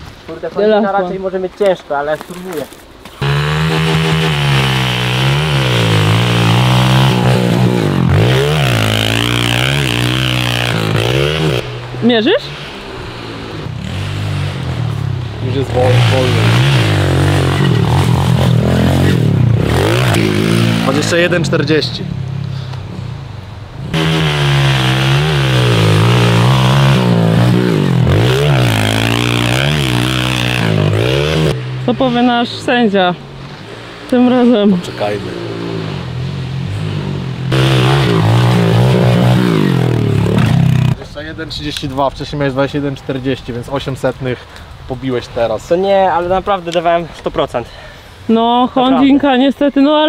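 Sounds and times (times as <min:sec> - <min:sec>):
motorbike engine revving: 0:03.2 - 0:21.6, 0:23.8 - 0:32.8, 0:34.2 - 0:41.0.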